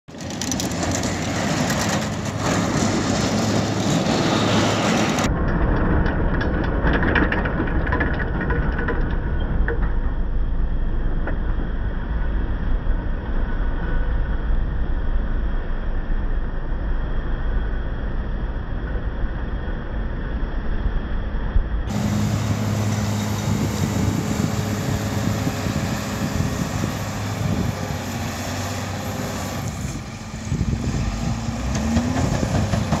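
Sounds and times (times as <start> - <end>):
wheel loader diesel engine: 0.0 - 13.4, 21.9 - 33.0.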